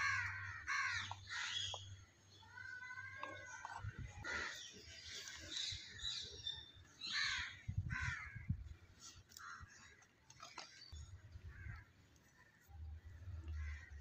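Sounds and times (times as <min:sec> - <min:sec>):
crows cawing: 0:00.0 - 0:01.7, 0:07.1 - 0:08.4.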